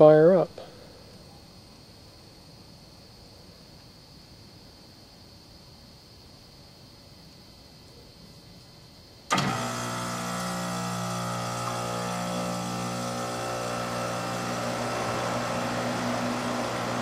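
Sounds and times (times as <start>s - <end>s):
compressor humming: 9.3s - 17.0s.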